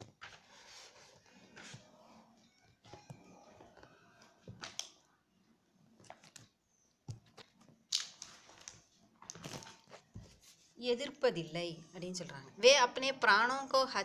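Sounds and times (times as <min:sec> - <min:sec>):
book pages rustling: 0:00.0 - 0:02.1, 0:06.0 - 0:10.8.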